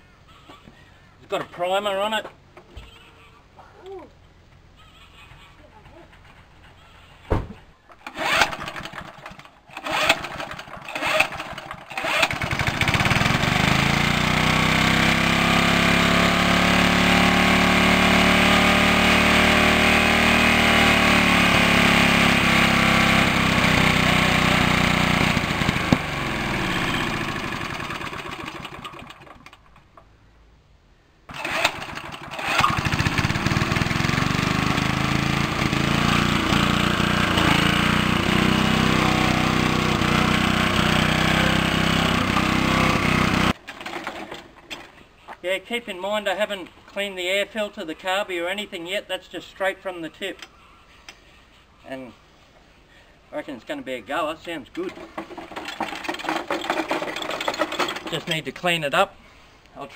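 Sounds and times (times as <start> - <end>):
starter cord pulls: 7.9 - 13.9, 22.4 - 29.7, 31.3 - 37.8, 39.7 - 45.0, 54.7 - 58.5
lawn mower engine running: 7.9 - 30.0, 31.3 - 44.9, 54.4 - 59.0.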